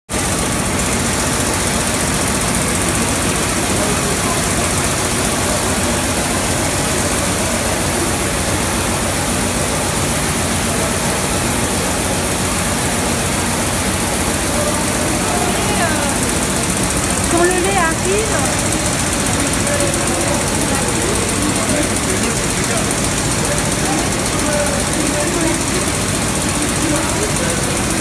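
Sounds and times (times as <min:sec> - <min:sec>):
machinery noise: 0:00.1 - 0:28.0.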